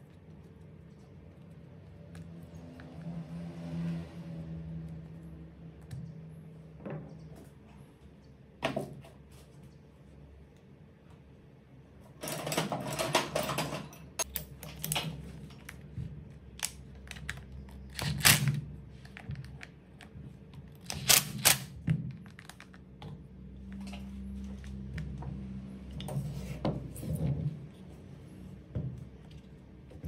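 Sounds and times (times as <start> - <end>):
metal and plastic parts clicking: 20.7 - 22.8.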